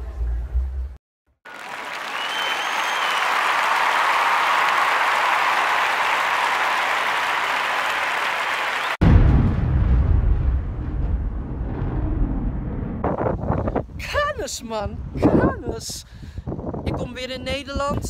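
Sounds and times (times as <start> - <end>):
crowd applause: 1.4 - 9.0
whistle from crowd: 1.9 - 4.6, 7.8 - 9.0
loud low rumble: 9.0 - 14.0.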